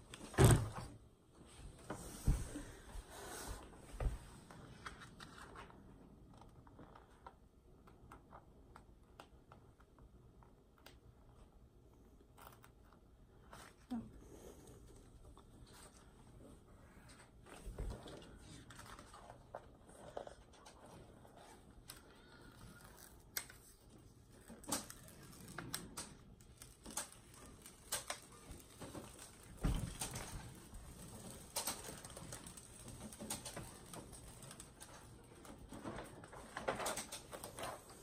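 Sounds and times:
release paper crinkling: 21.8 - 38.0.

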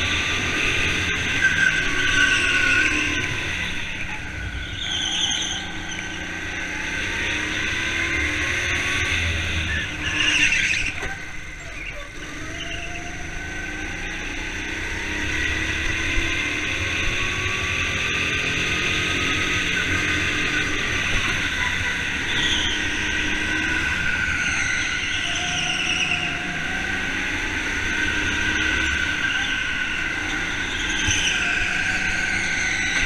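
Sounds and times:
go-kart motor running: 0.0 - 33.0
tyre squeals: 1.1 - 6.3, 9.6 - 13.1, 21.4 - 23.3, 24.0 - 26.6, 28.6 - 33.0.

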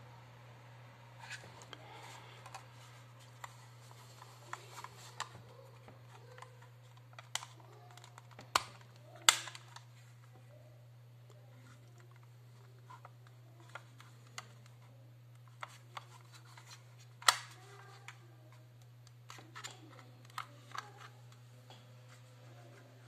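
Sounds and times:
sharp plastic snap: 7.2 - 9.8, 17.2 - 17.6.

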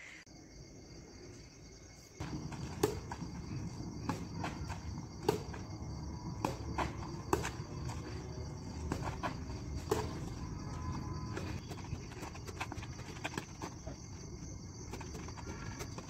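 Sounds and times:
crickets chirring: 0.0 - 16.0
rackets hitting shuttlecock: 2.2 - 10.5.

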